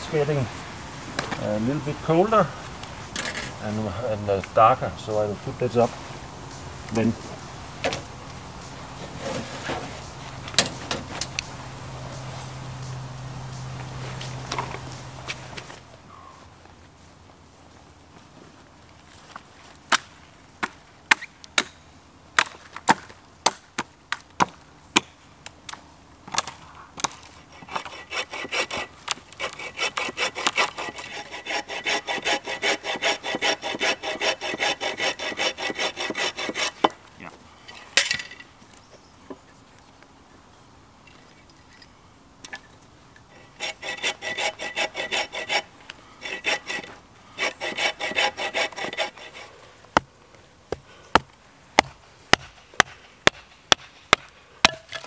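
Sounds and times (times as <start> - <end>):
saw cutting wood: 27.4 - 36.9, 43.3 - 49.7.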